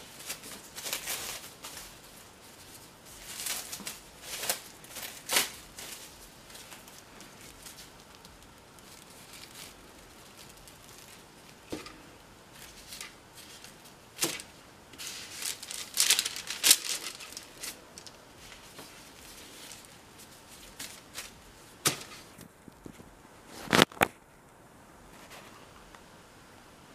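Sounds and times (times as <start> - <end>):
rustling and crinkling handling noise: 0.0 - 24.2.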